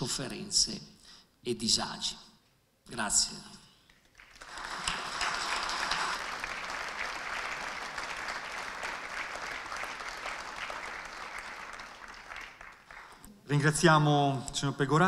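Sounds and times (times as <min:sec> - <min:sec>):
audience applauding: 0:04.1 - 0:13.3.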